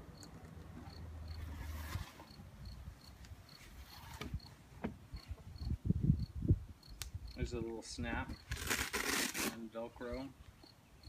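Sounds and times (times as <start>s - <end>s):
cricket chirping: 0.1s - 1.5s, 2.3s - 3.6s, 4.4s - 7.5s.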